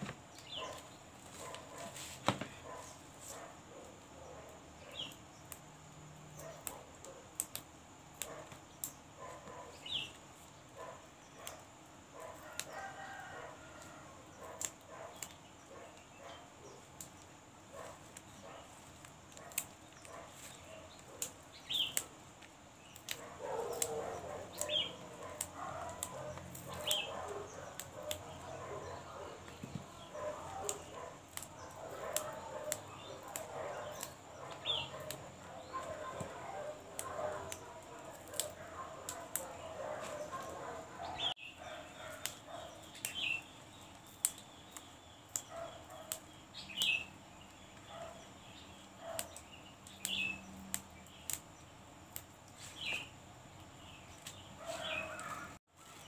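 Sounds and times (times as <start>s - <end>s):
vegetable stems snapping: 6.4s - 9.6s, 17.8s - 28.8s, 29.5s - 40.7s, 42.1s - 43.3s, 44.0s - 46.2s, 54.2s - 55.4s
rooster crowing: 12.4s - 14.3s, 54.7s - 55.6s.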